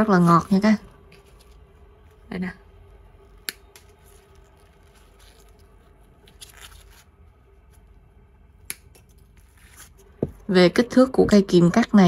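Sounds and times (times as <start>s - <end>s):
soft scraping and rustling: 0.1s - 2.2s, 3.9s - 7.8s.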